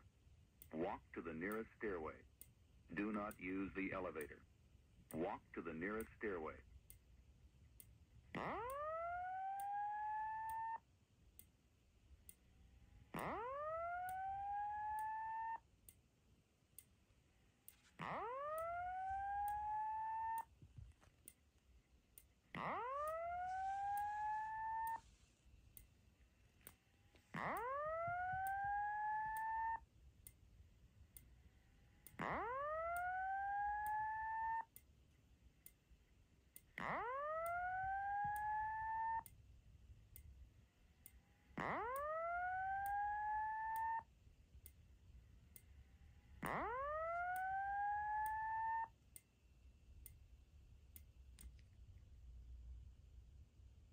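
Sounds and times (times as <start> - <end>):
faint strobe clicks: 0.0 - 8.9, 9.5 - 52.6
fire alarm whoop tone: 8.4 - 10.9, 13.1 - 15.7, 17.9 - 20.5, 22.5 - 25.2, 27.3 - 29.9, 31.9 - 34.7, 36.8 - 39.3, 41.5 - 44.1, 46.2 - 49.0.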